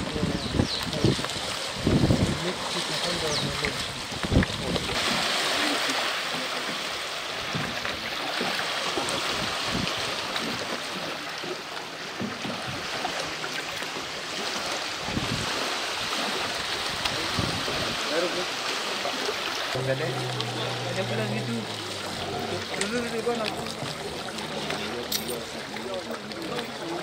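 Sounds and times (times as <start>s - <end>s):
wind gusts on microphone: 0.0s - 2.5s, 15.0s - 15.6s, 16.9s - 18.0s
lake water washing at shore: 0.0s - 27.0s.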